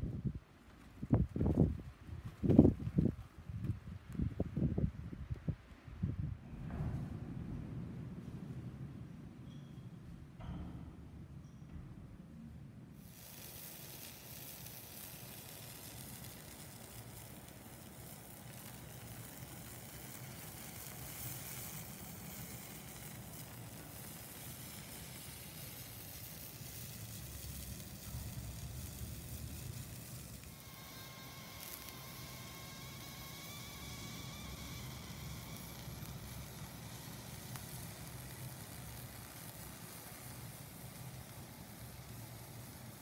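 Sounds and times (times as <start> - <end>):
vegetables sizzling: 13.0 - 43.0.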